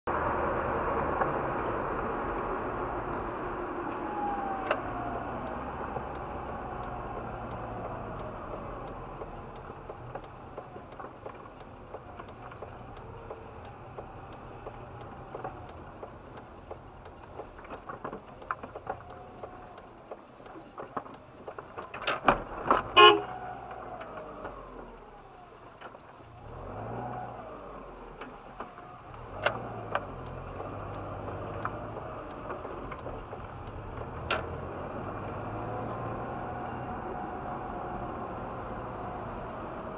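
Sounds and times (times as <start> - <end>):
car road and engine noise: 0.0 - 39.9
sharp clicks: 0.3 - 39.9
car horn blast: 22.9 - 23.4.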